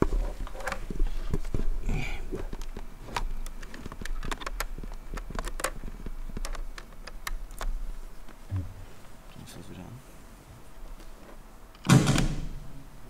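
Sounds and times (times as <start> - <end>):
low electrical hum: 0.0 - 13.0
laptop keyboard typing: 2.6 - 7.7.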